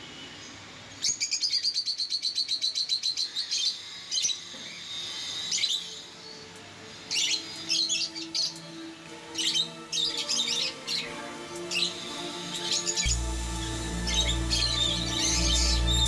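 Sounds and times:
parrots chirping: 1.1 - 16.0.

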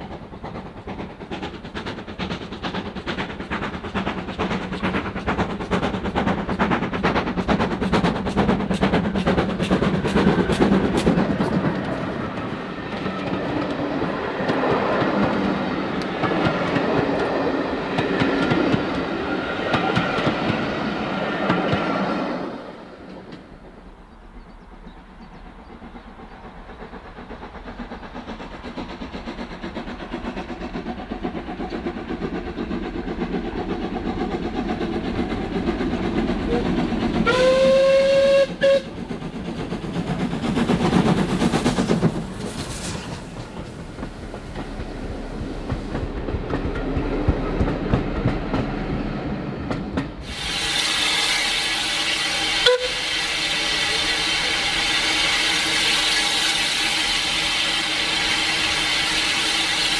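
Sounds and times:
train rail clatter: 0.0 - 22.3, 22.9 - 59.9
train whistle blast: 37.2 - 39.0, 50.3 - 59.9.

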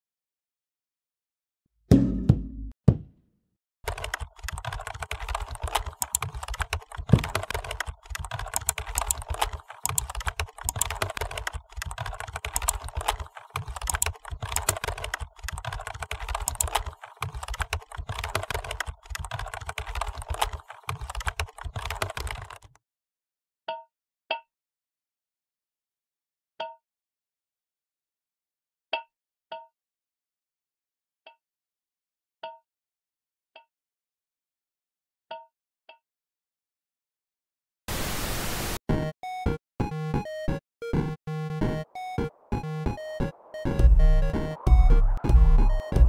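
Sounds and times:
typing on computer keyboard: 3.9 - 22.8.

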